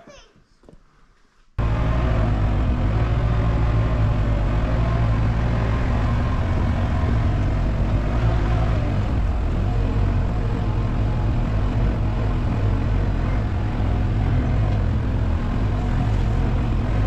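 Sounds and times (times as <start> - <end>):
vehicle engine running: 1.6 - 17.0.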